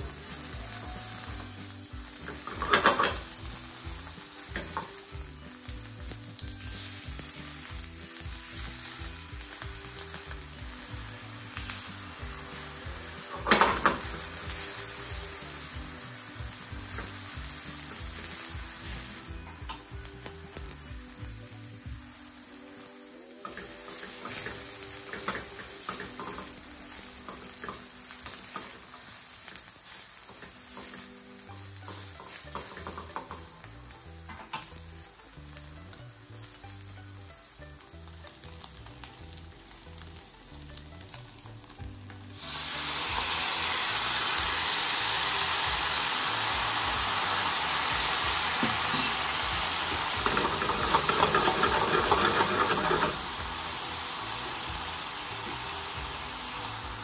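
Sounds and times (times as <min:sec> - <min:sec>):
sauce hissing in hot pan: 0:00.0 - 0:57.0
vegetables sizzling in frying pan: 0:00.0 - 0:57.0
tongs clicking against pan: 0:31.8 - 0:33.5.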